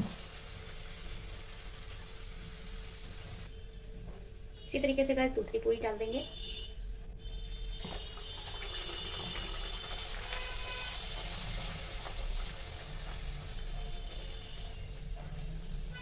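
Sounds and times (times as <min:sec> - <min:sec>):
oil sizzling: 0:00.0 - 0:03.5, 0:07.7 - 0:16.0.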